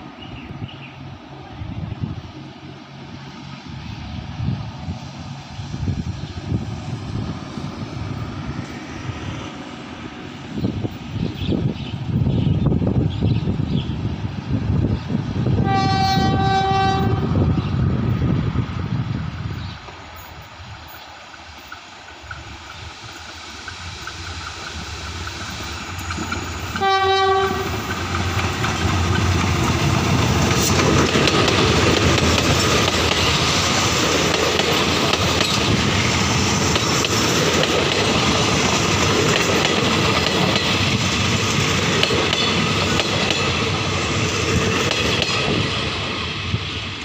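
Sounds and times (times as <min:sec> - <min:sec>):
locomotive horn blast: 0:15.6 - 0:17.4, 0:26.8 - 0:27.9
train wheels clacking over rail joints: 0:21.3 - 0:46.0.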